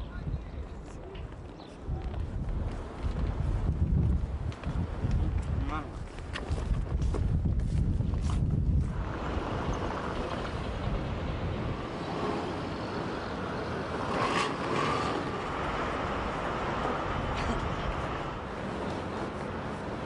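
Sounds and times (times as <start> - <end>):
city street traffic: 8.7 - 20.0.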